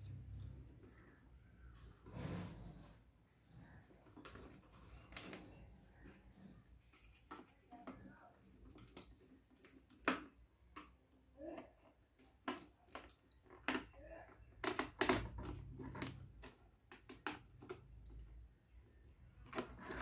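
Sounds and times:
plastic and wires clicking: 0:06.8 - 0:18.2.

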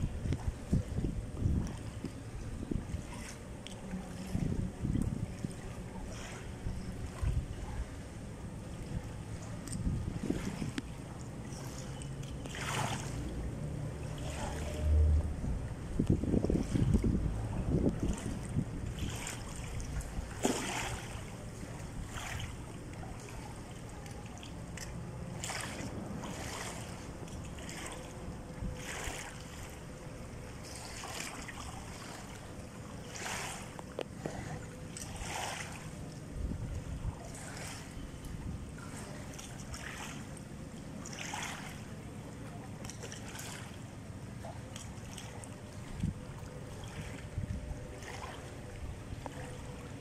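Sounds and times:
wind rumbling on microphone: 0:00.0 - 0:23.2, 0:33.1 - 0:40.2, 0:45.6 - 0:50.0
small waves lapping and splashing: 0:00.0 - 0:50.0.

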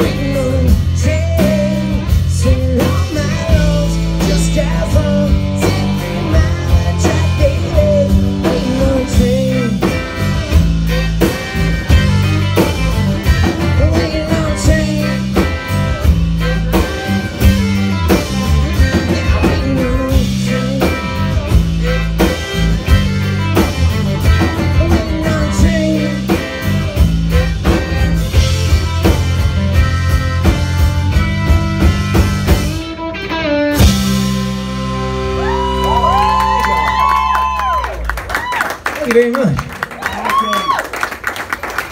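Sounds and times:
rock band playing live: 0:00.0 - 0:41.9.

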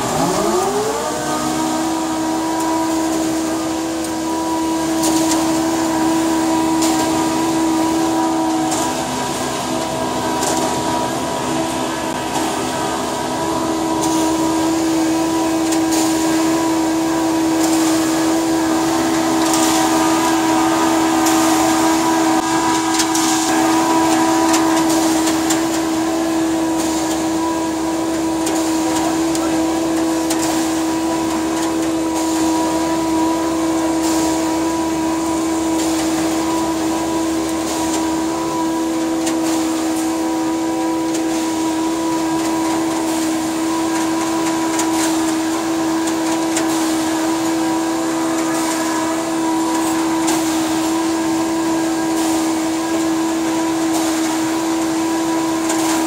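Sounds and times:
heavy machinery droning: 0:00.0 - 0:56.0
hose spraying hiss: 0:11.4 - 0:56.0.

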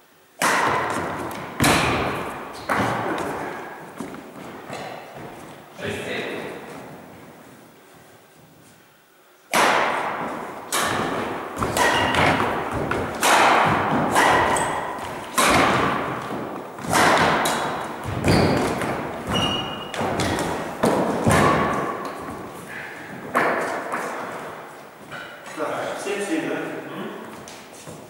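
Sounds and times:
racket hitting shuttlecock: 0:00.4 - 0:05.6, 0:09.5 - 0:25.4
sneakers squeaking on wooden floor: 0:00.6 - 0:08.8, 0:10.2 - 0:25.6.

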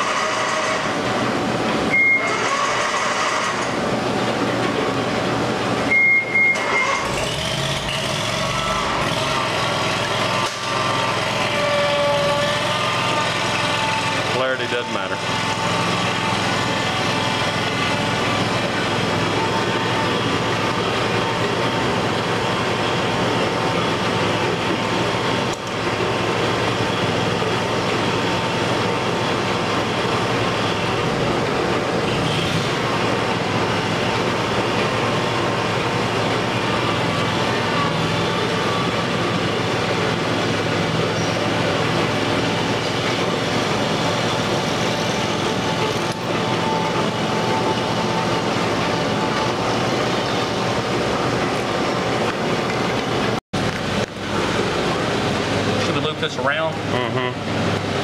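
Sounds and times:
machine drone: 0:00.0 - 0:58.0.

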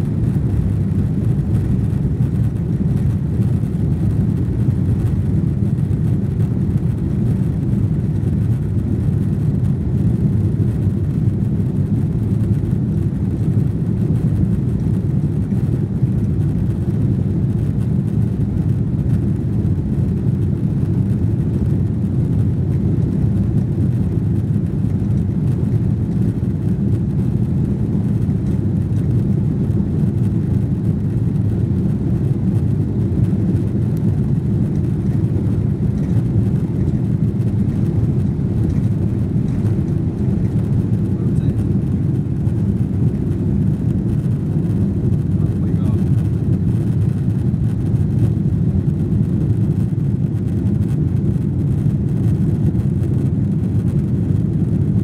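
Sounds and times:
jet engines rumbling: 0:00.0 - 0:55.0
rushing air: 0:27.7 - 0:47.0.

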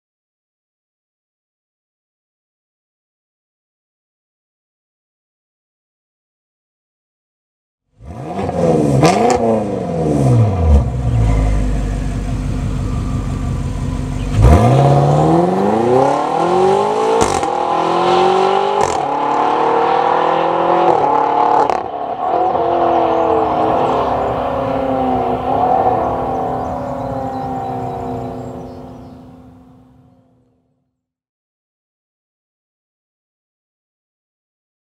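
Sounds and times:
car engine revving and accelerating: 0:07.9 - 0:29.4.

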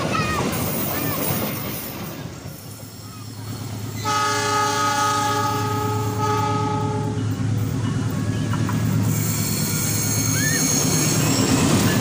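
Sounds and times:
diesel locomotive drone: 0:00.0 - 0:12.0
passing train rumble: 0:00.0 - 0:12.0
locomotive horn blast: 0:04.0 - 0:07.2.

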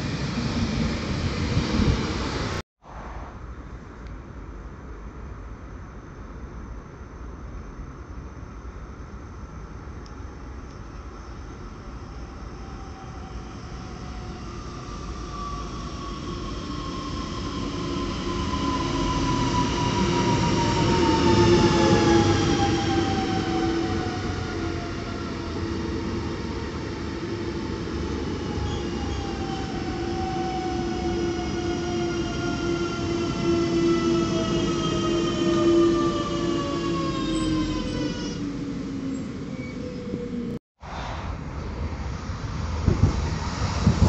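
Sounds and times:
train braking: 0:11.6 - 0:41.2.

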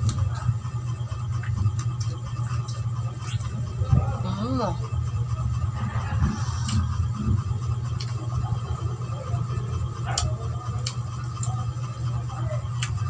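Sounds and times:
steady low hum: 0:00.0 - 0:13.0
person chewing soft food: 0:01.3 - 0:03.8, 0:05.7 - 0:08.7, 0:10.0 - 0:11.7.

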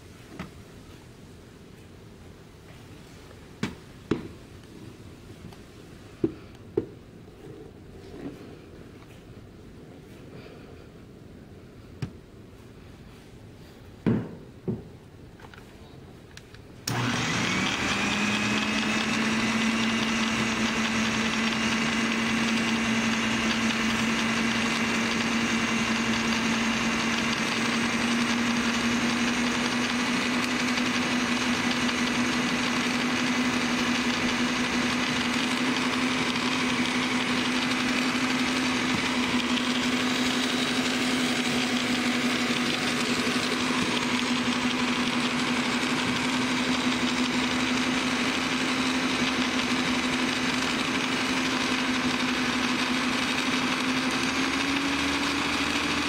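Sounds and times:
stand mixer motor hum: 0:16.9 - 0:56.0.

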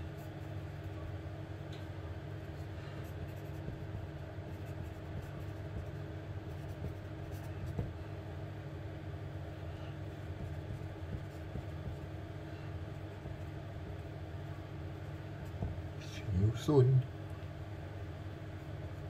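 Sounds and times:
low background hum: 0:00.0 - 0:19.0
pen scratching on paper: 0:02.5 - 0:07.9, 0:10.0 - 0:12.2, 0:12.9 - 0:14.1.

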